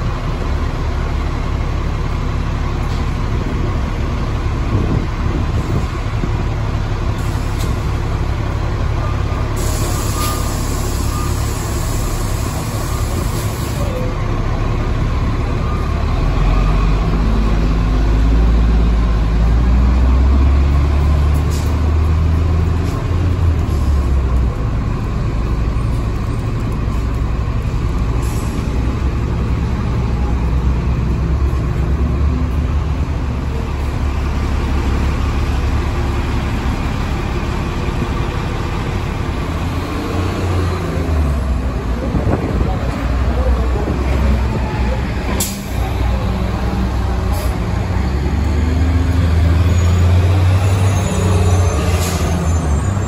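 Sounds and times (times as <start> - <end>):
bus engine idling: 0.0 - 53.0
compressed air hiss: 9.6 - 13.9.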